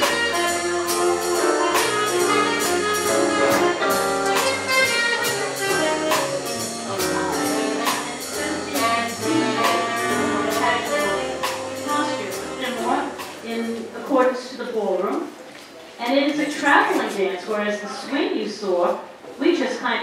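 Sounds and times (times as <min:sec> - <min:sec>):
brass and saxophones: 0:00.0 - 0:13.4
steady drum beat: 0:00.0 - 0:13.8
big band jazz orchestra: 0:00.0 - 0:15.4.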